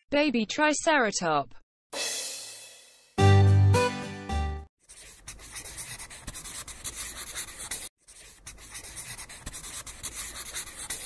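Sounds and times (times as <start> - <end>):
pen scratching on paper: 4.8 - 11.0.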